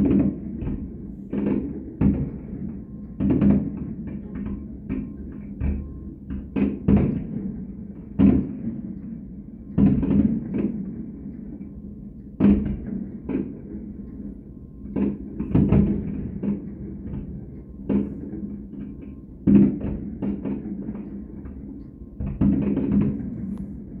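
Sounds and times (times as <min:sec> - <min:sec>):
fireworks booming with echo: 0:00.0 - 0:05.8, 0:06.5 - 0:08.8, 0:09.8 - 0:11.2, 0:12.4 - 0:13.7, 0:15.0 - 0:21.6, 0:22.2 - 0:24.0.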